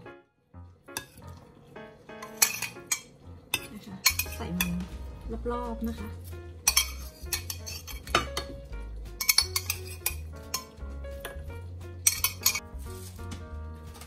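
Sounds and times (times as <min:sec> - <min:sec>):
background music: 0:00.0 - 0:14.0
spoon clinking on ceramic plate: 0:02.2 - 0:04.4, 0:06.6 - 0:08.5, 0:09.2 - 0:10.7, 0:12.0 - 0:12.6.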